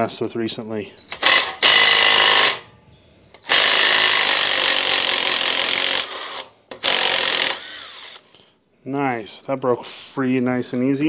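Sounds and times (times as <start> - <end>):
motor whirring down: 6.0 - 8.3.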